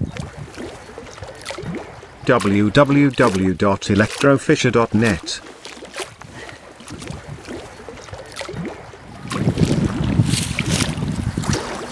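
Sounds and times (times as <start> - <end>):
wind noise on microphone: 0.0 - 0.8, 6.2 - 7.6, 8.5 - 11.9
shallow water sloshing: 0.0 - 11.9.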